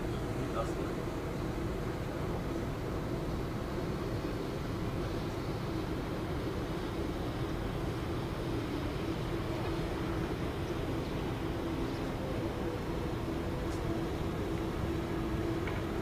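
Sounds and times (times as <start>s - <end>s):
low mechanical hum: 0.0s - 16.0s.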